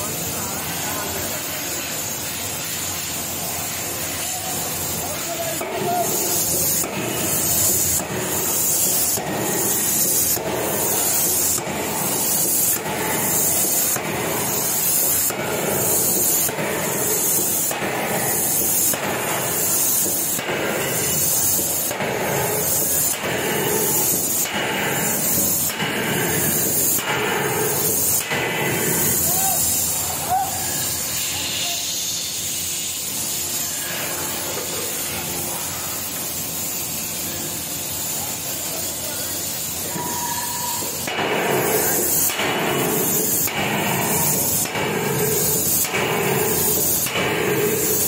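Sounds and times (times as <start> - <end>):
hissing bursts: 0.0 - 48.0
forging hammer striking metal: 5.6 - 29.5, 40.0 - 48.0.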